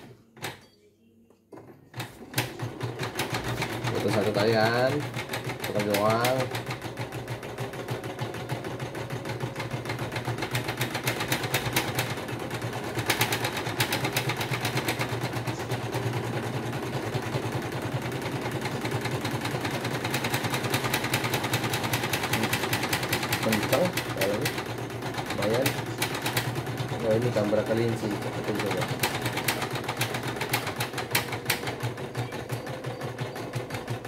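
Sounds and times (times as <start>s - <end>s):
embroidery machine stitching: 1.9s - 34.0s.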